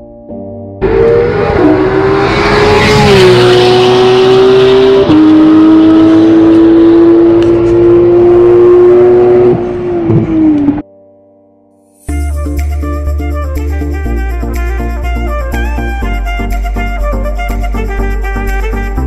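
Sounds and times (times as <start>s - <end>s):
sports car engine accelerating: 0.8s - 10.8s.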